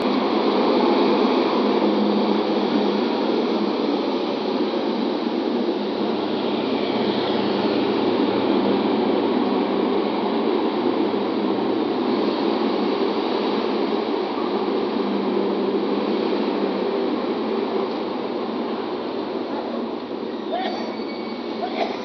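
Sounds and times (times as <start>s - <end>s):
bus diesel engine running: 0.0s - 22.0s
street noise: 0.0s - 22.0s.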